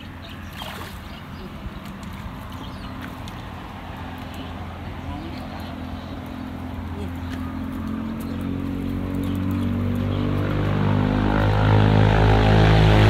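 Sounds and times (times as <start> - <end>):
engine droning: 0.0 - 13.0.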